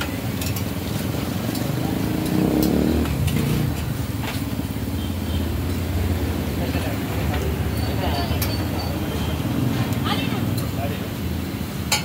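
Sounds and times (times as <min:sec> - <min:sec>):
metal utensils clinking on griddle: 0:00.0 - 0:04.5, 0:06.7 - 0:10.8
low traffic rumble: 0:00.0 - 0:12.0.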